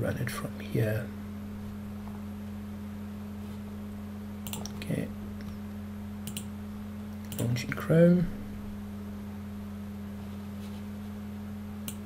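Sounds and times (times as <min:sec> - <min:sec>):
low electrical hum: 0:00.0 - 0:12.0
computer mouse clicking: 0:04.4 - 0:04.8, 0:06.2 - 0:06.5, 0:07.2 - 0:07.5.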